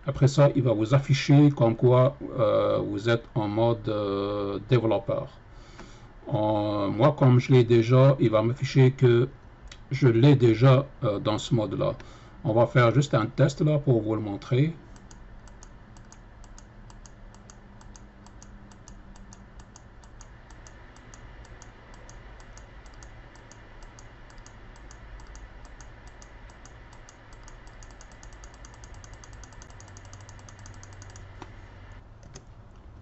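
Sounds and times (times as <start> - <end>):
faint steady hum: 0.0 - 33.0
mouse button clicking rapidly: 14.9 - 31.5.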